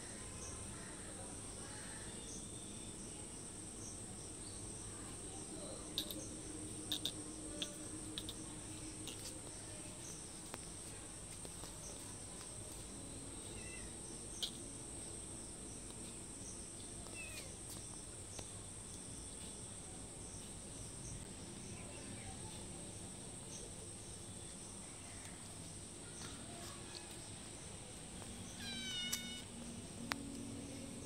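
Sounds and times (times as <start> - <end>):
crickets chirring: 0.2 - 31.0
cat meowing: 28.5 - 29.6.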